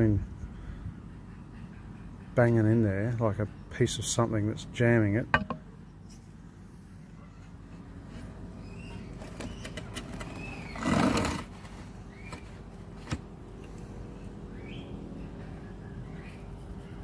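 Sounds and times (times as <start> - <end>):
bird calls: 8.6 - 11.0, 12.0 - 12.6, 14.4 - 16.9.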